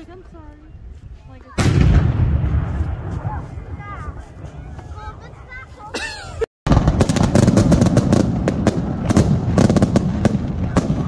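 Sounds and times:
fireworks bursting: 1.6s - 5.1s, 6.7s - 11.0s
fireworks crackle: 6.7s - 11.0s.

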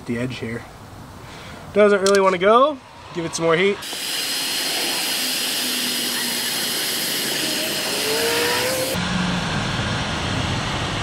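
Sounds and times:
heat gun blowing hot air: 3.8s - 9.0s.

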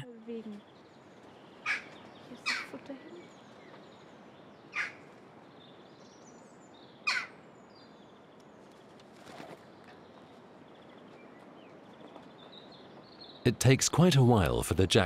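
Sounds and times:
small birds twittering: 0.0s - 14.6s
jackdaws calling: 1.2s - 3.8s, 4.4s - 5.2s, 7.0s - 7.4s.

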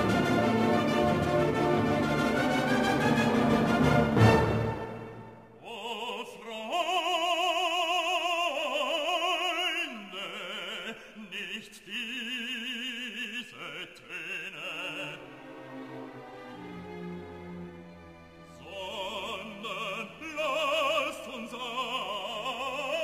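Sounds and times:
operatic singing voice: 5.5s - 15.8s, 18.5s - 23.0s.

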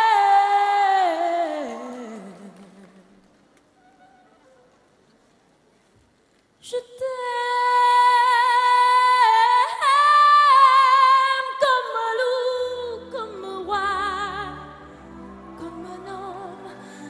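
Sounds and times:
woman singing: 0.0s - 3.3s, 6.6s - 17.0s.

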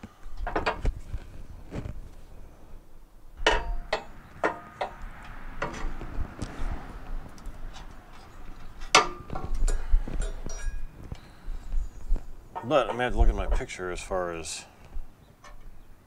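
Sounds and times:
metal clinks and knocks: 3.4s - 6.0s, 7.7s - 11.0s.

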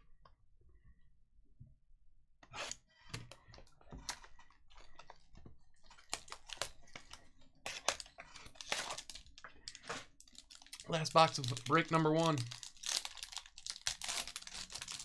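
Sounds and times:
shrink wrap crinkling: 5.9s - 15.0s.

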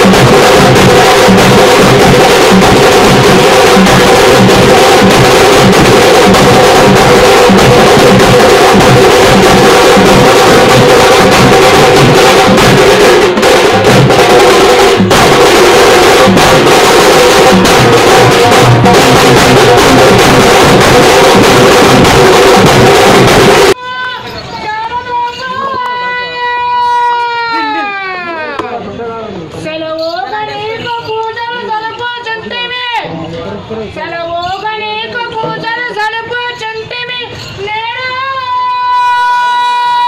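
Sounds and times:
drum band playing fast beat: 0.0s - 23.8s.

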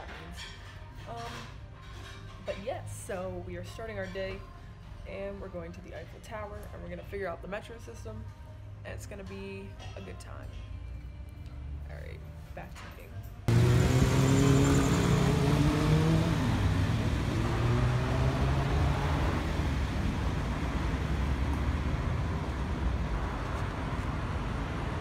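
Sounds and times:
rush of traffic noise: 13.5s - 25.0s
vehicle engine running: 13.5s - 25.0s.

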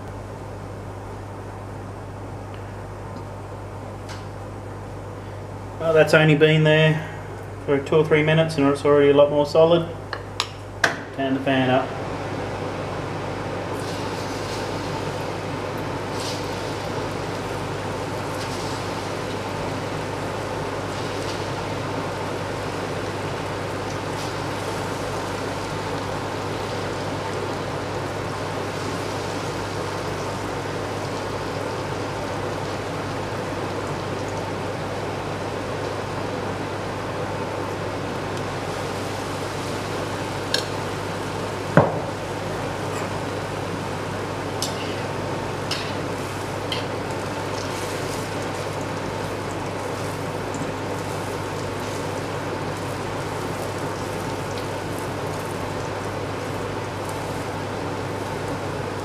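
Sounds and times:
food sizzling in hot oil: 13.6s - 59.0s.

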